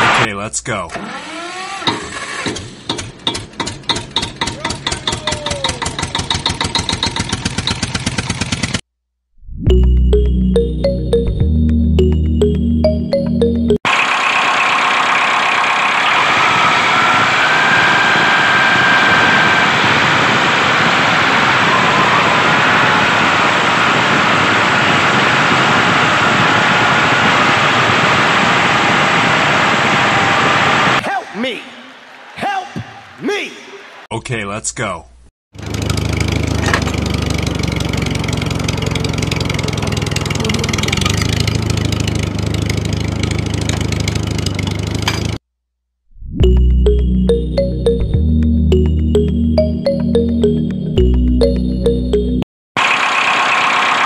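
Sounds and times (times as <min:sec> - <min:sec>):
tractor engine cranking and chugging: 0:00.9 - 0:08.8, 0:13.9 - 0:16.3, 0:35.6 - 0:45.4, 0:52.8 - 0:54.0.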